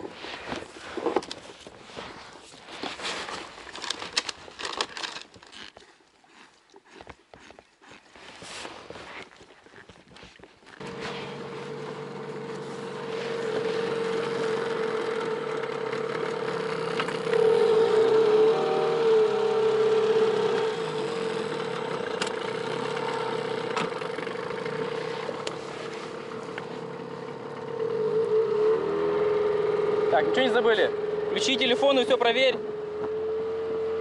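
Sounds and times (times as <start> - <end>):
outboard motor droning: 10.8 - 34.0.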